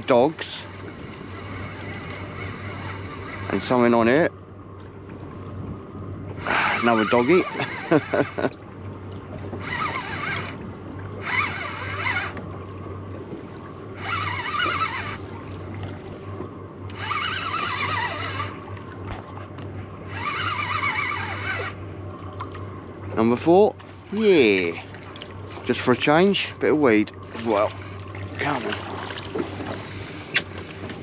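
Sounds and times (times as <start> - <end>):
steady low hum: 0.0 - 31.0
fishing reel winding: 9.6 - 10.6, 11.2 - 12.4, 14.0 - 15.2, 16.9 - 18.6, 20.1 - 21.8.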